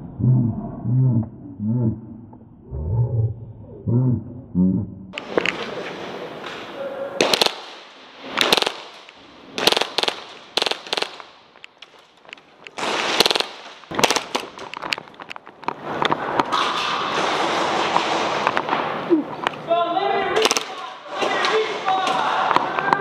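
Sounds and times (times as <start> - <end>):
airsoft guns firing: 7.2 - 14.9, 20.4 - 21.8.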